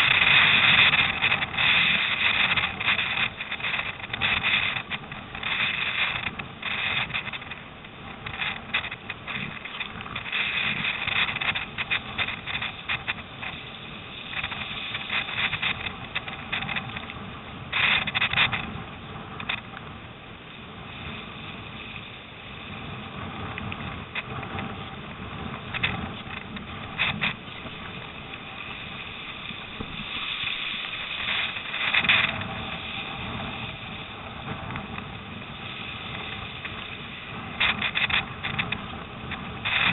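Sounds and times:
wind on microphone: 0.0 - 39.9
water splashing: 25.4 - 39.9.

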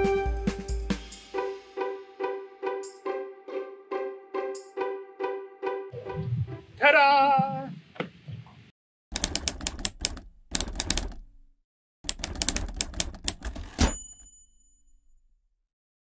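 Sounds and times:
typewriter key strikes: 9.2 - 11.4, 12.0 - 14.3
typewriter bell ding: 13.5 - 15.3.

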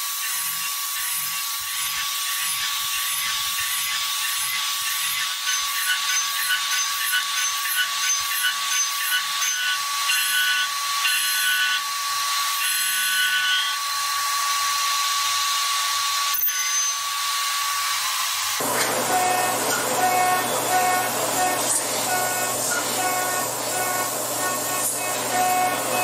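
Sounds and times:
chattering metal cutting: 0.2 - 11.8, 18.5 - 26.0
milling spindle whine: 18.6 - 26.0.

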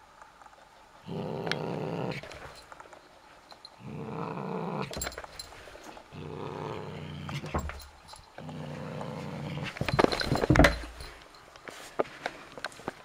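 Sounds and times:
cat growling: 1.0 - 2.5, 3.8 - 5.2, 6.0 - 7.7, 8.4 - 9.9.

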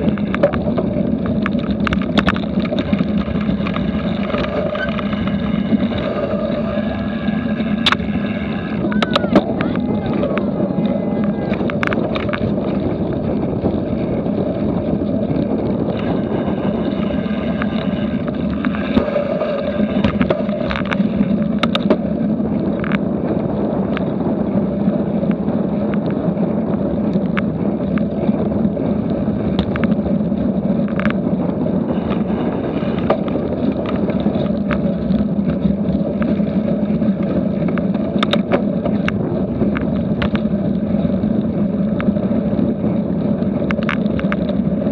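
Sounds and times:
bike clicks and rattles: 0.0 - 44.9
tyres rolling over grass and gravel: 0.0 - 44.9
wind rumble on microphone: 0.0 - 44.9.

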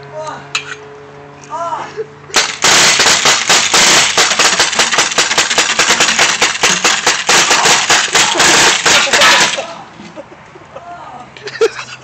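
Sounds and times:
rapid paintball gun fire: 2.3 - 9.7.

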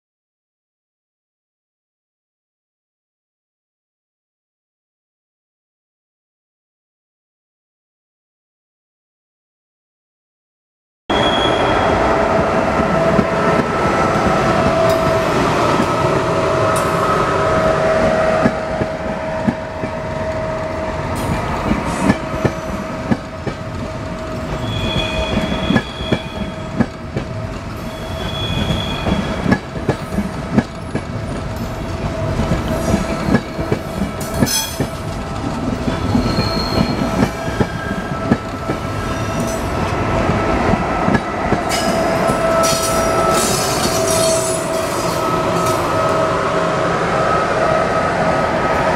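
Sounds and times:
brief high squeals: 11.1 - 11.8, 24.6 - 26.7, 36.1 - 38.1
locomotive high whine: 11.1 - 29.4, 30.2 - 48.9
train wheels clacking over rails: 21.1 - 46.2.

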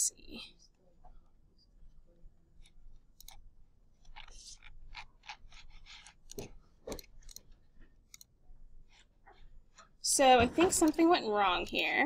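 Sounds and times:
computer mouse clicks: 2.6 - 3.4, 4.0 - 8.3.

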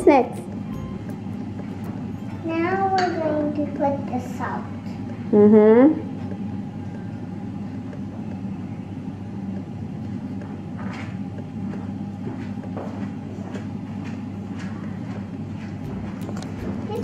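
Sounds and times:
low background hum: 0.0 - 17.0.

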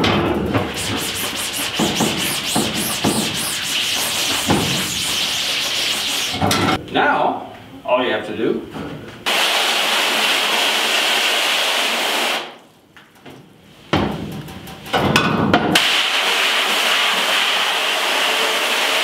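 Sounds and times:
hose nozzle spraying water: 0.7 - 6.5.

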